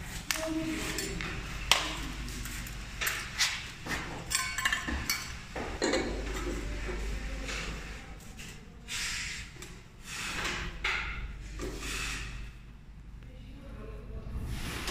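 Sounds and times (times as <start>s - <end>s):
tools and parts clinking: 0.9s - 6.5s.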